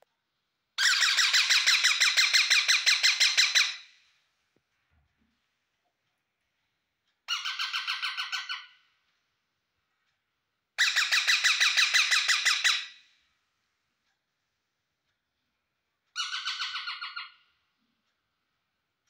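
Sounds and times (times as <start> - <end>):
parakeet calling harshly: 0.8 - 3.9, 7.3 - 8.8, 10.8 - 13.0, 16.2 - 17.5.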